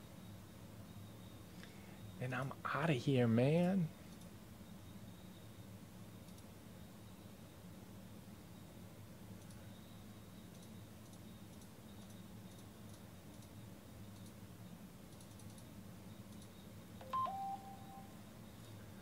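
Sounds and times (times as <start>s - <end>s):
low room hum: 0.0s - 19.0s
faint computer clicks: 3.6s - 4.4s, 6.2s - 6.5s, 9.3s - 9.7s, 10.4s - 14.4s, 15.1s - 16.7s
descending electronic beep: 17.0s - 18.2s.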